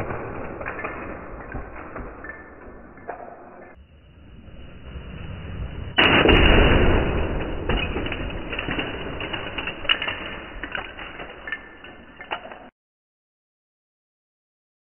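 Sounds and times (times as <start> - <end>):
plastic toy crash clatter: 6.0 - 12.7
loose plastic pieces rattling: 7.8 - 12.7.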